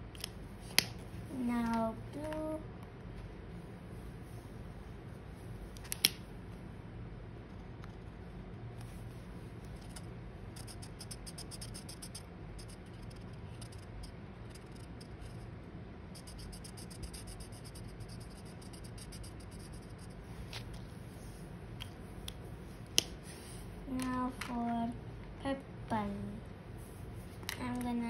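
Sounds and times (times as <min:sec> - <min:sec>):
marker scratching on paper: 0:09.8 - 0:15.5, 0:16.2 - 0:21.4.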